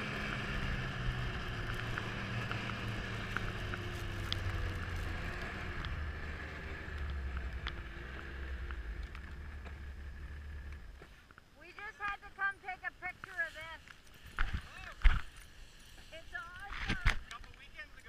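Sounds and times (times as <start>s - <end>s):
snowmobile engine running: 0.0s - 11.0s.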